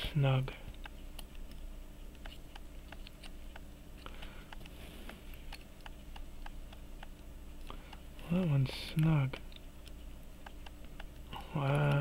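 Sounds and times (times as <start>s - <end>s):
faint steady hum: 0.0s - 12.0s
small metallic clicks and taps: 0.7s - 4.7s, 8.9s - 12.0s.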